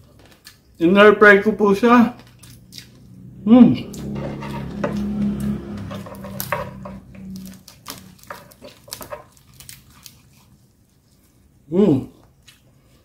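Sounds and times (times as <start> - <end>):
low steady hum: 1.6 - 13.0.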